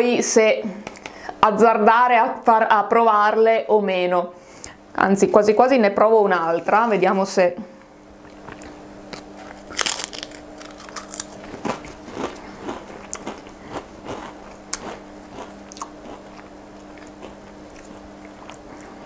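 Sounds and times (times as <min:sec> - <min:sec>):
crisp bitten with crackling snap: 0:08.2 - 0:18.9
chewing crunching: 0:08.2 - 0:19.0.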